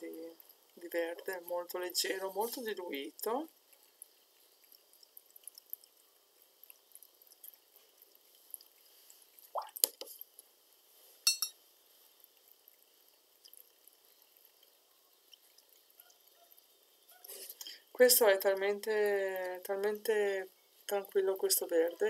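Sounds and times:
brush clinking against glass: 11.2 - 11.6.

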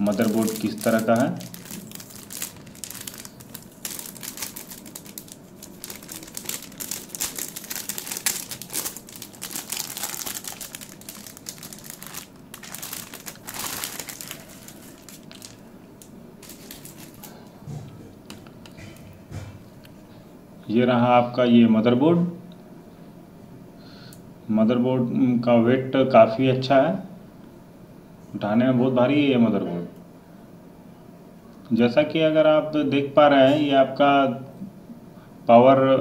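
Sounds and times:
plastic bag crinkling: 0.0 - 17.6.

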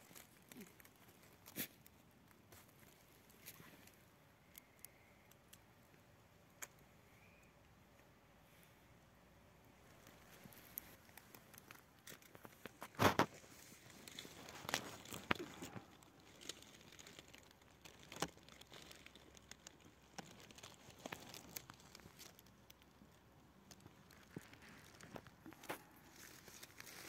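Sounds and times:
dry leaves crunching: 10.1 - 22.4, 24.1 - 27.0.

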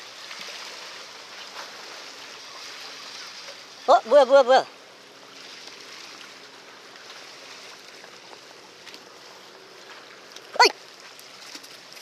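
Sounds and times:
seawater washing at shore: 0.0 - 12.0.

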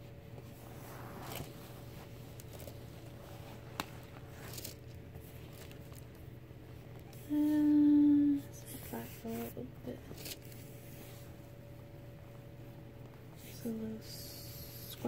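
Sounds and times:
faint steady hum: 0.0 - 15.0
fabric bag rustling: 0.4 - 6.1.

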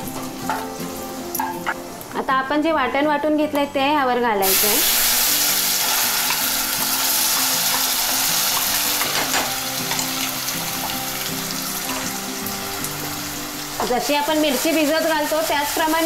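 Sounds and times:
paste sizzling in hot oil: 4.4 - 16.0.

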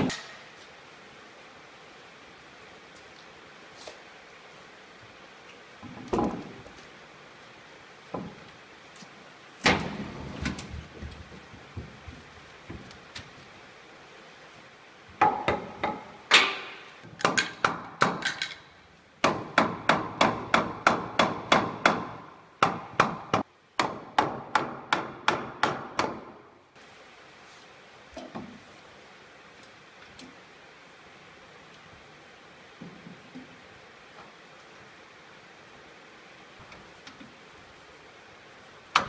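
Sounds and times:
hammer knocking on wood: 15.2 - 16.6.

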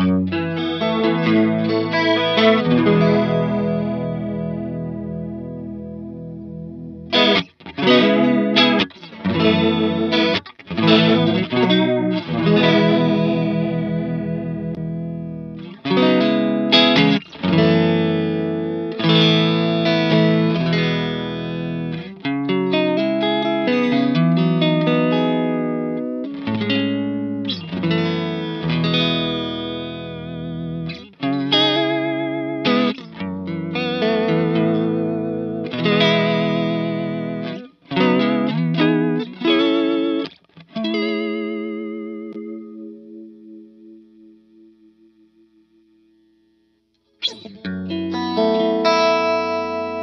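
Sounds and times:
electric guitar with chorus vibrato: 0.0 - 50.0.

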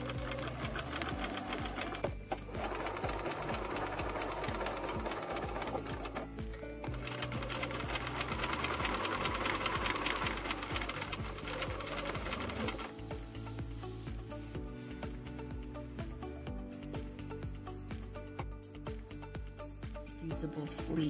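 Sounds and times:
sewing machine stitching: 0.0 - 12.9.

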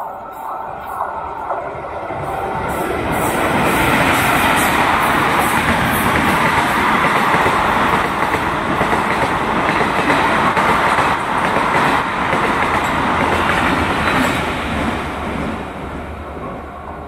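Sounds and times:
train wheels rumbling on rails: 0.0 - 17.0
clickety-clack of rail joints: 3.3 - 15.6.

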